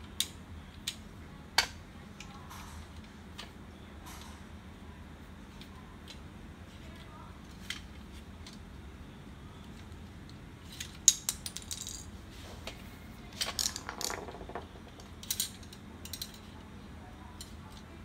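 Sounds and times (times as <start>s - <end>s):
plastic and metal parts clattering: 13.4s - 16.5s.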